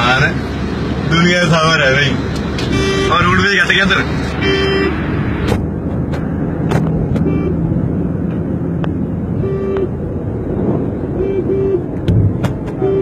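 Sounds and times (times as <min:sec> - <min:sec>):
vehicle engine and road noise: 0:00.0 - 0:13.0
car horn toots: 0:04.4 - 0:05.0, 0:07.2 - 0:07.6, 0:09.4 - 0:10.0, 0:11.2 - 0:11.9, 0:12.8 - 0:13.0.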